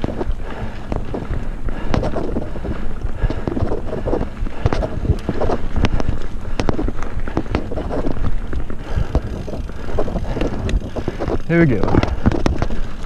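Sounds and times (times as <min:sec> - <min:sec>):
bike rattling and knocking: 0:00.0 - 0:13.0
bike tyres rumbling on dirt: 0:00.0 - 0:13.0
wind buffeting microphone: 0:00.0 - 0:13.0.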